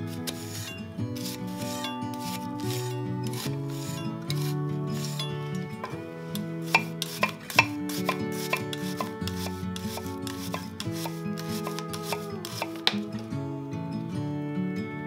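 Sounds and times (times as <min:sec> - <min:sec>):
soft background music: 0:00.0 - 0:15.0
knife dicing on wooden board: 0:06.7 - 0:13.0.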